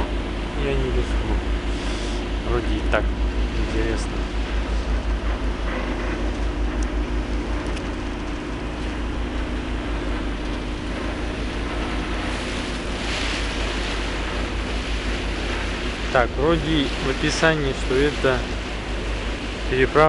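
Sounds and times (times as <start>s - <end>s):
ferry engine throbbing: 0.0s - 20.0s
wind and water rushing: 0.0s - 20.0s.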